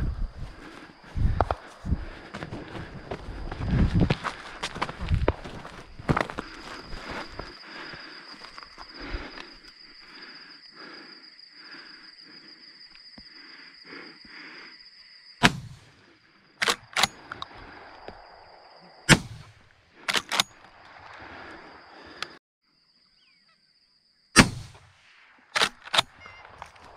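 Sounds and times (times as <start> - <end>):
shotgun shots: 15.4 - 15.9, 19.1 - 19.6, 24.4 - 25.0.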